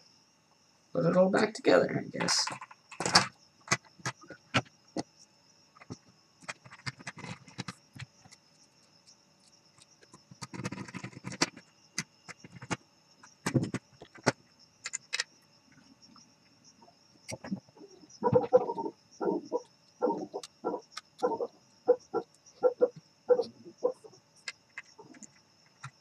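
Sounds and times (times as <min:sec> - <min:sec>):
clicks and clatter of plastic parts: 0:02.2 - 0:05.1, 0:05.8 - 0:08.4, 0:09.8 - 0:15.3, 0:24.4 - 0:26.0.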